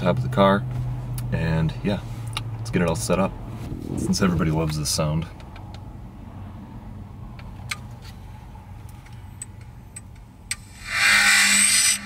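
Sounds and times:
loud rushing burst of noise: 10.6s - 12.0s.

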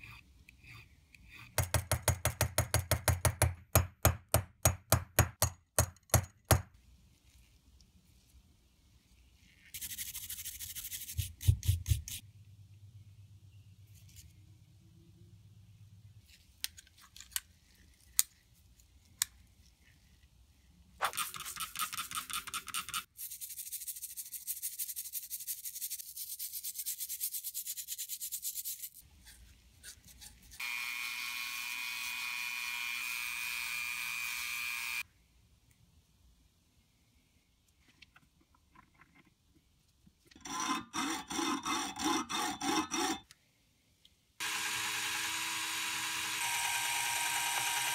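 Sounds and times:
rotary tool running: 44.4s - 47.9s.

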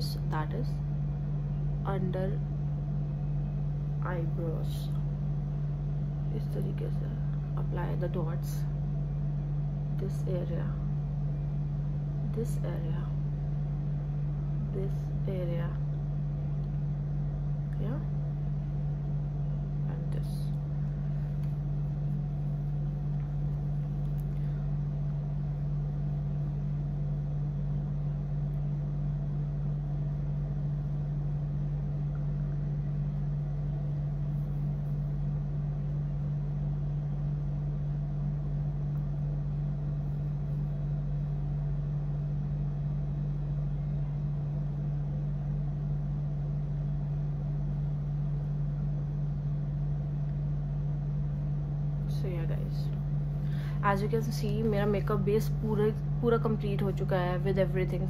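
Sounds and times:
steady low hum: 0.0s - 58.0s.

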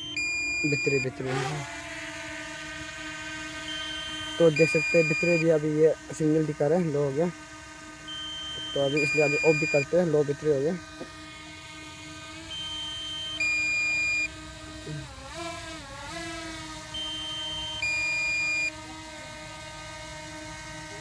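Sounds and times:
two-tone warning beep: 0.0s - 1.1s, 3.7s - 5.5s, 8.1s - 9.9s, 12.5s - 14.3s, 17.0s - 18.7s
drone propellers whining: 0.0s - 21.0s.

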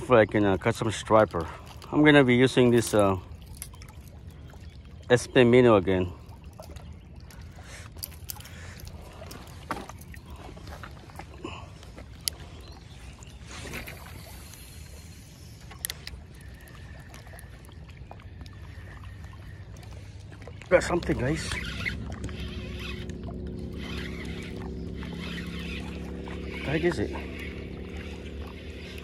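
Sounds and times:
fishing line casting swish: 13.4s - 16.2s, 21.2s - 29.0s
reel cranking with whine: 13.4s - 29.0s
fishing reel clicks: 15.6s - 16.6s, 21.1s - 29.0s
low rumble: 20.6s - 29.0s.

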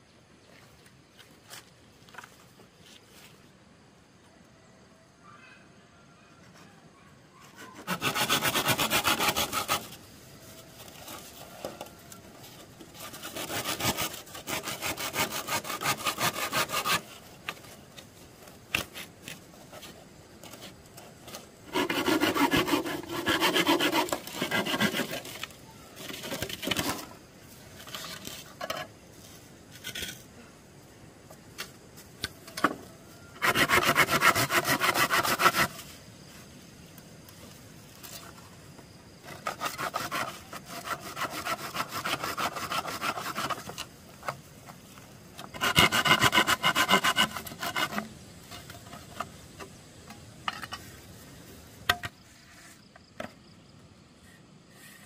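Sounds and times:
hand saw cutting wood: 7.6s - 10.0s, 12.8s - 17.7s, 21.3s - 27.1s, 33.4s - 35.8s, 39.3s - 43.9s, 45.4s - 49.2s.

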